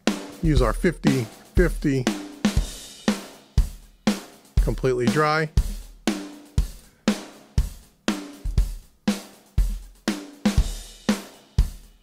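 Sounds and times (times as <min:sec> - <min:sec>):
drum kit beat: 0:00.0 - 0:12.0.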